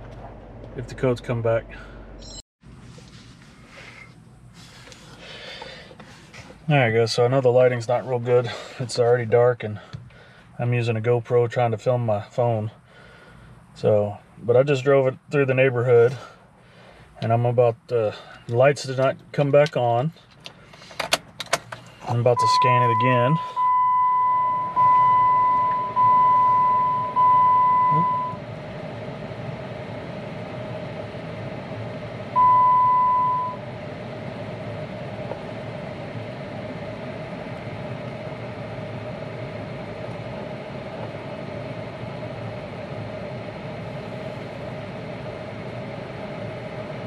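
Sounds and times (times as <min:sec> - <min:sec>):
car engine idling: 0:00.0 - 0:47.0
vehicle warning chime dinging: 0:22.1 - 0:28.4, 0:32.4 - 0:33.6.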